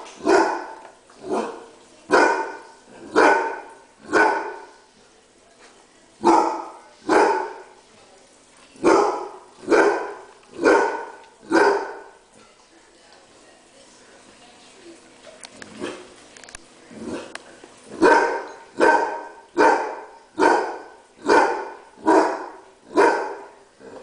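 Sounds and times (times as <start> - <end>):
dog barking loudly: 0.2 - 4.7, 6.2 - 7.6, 8.8 - 12.1, 18.0 - 23.5.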